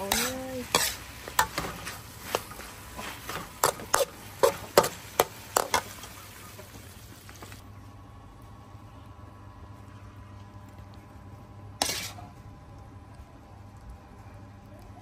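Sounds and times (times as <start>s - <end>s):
metal spatula scraping a wok: 0.0s - 5.0s, 11.8s - 12.3s.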